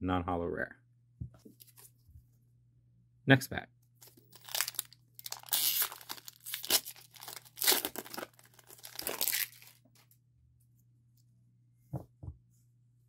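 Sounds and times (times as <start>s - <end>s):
foil wrapper tearing and crinkling: 4.0s - 9.8s.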